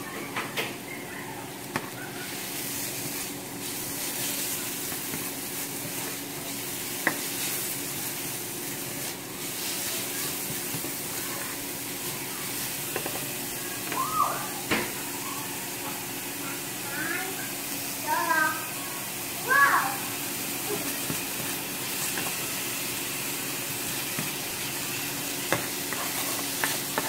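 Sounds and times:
onion sizzling in frying pan: 0:00.7 - 0:27.0.

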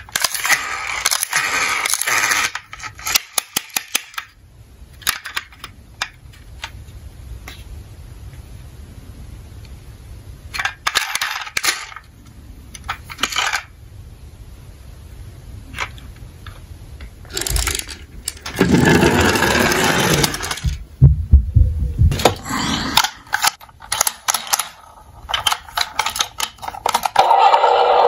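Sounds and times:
toy car rolling down a slope: 0:00.0 - 0:04.3, 0:17.3 - 0:20.8, 0:23.9 - 0:28.0
plastic toys clicking and tapping: 0:00.0 - 0:04.4, 0:05.0 - 0:06.7, 0:10.6 - 0:12.1, 0:17.3 - 0:20.8, 0:23.0 - 0:27.7.

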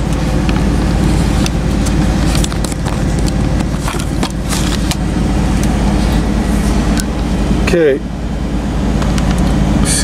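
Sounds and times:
diesel engine idling: 0:00.0 - 0:10.0
camera handling clicks and knocks: 0:02.3 - 0:05.0.

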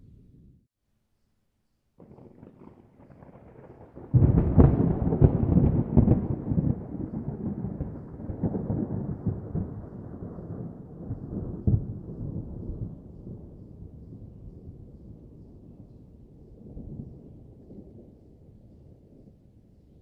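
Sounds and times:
thunder clap and rumble: 0:02.0 - 0:15.8.

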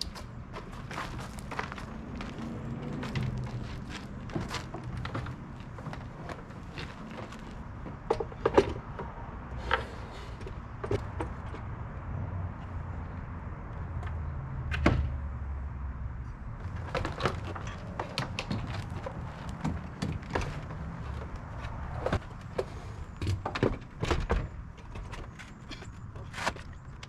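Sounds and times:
battery box clunking and knocking: 0:04.3 - 0:09.2.

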